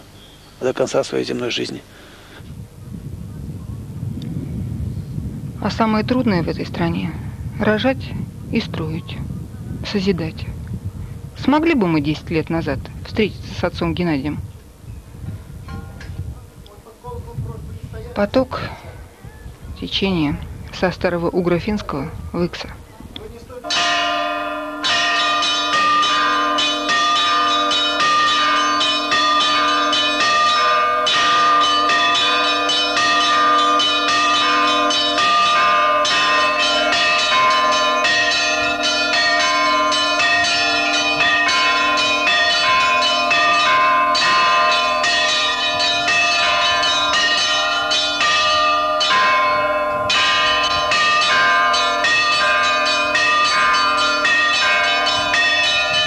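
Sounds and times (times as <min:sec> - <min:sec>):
church bells pealing: 0:23.6 - 0:56.0.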